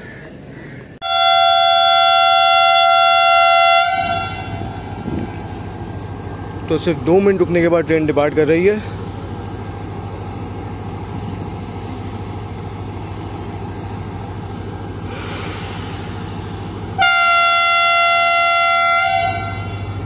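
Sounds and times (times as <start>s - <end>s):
locomotive idling: 0.2s - 20.0s
locomotive horn blast: 1.0s - 4.9s, 17.0s - 20.0s.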